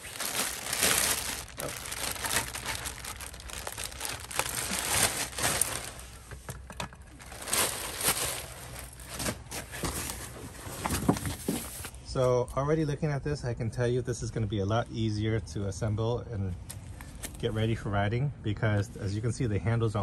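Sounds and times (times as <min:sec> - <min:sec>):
plastic bag crinkling: 0:00.0 - 0:06.3, 0:07.0 - 0:10.2.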